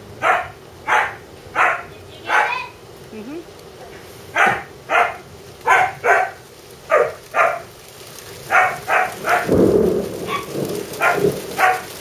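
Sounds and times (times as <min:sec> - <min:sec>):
rain hissing: 0:00.0 - 0:12.0
dog barking: 0:00.2 - 0:02.7, 0:04.3 - 0:07.7, 0:08.4 - 0:09.6, 0:10.2 - 0:12.0.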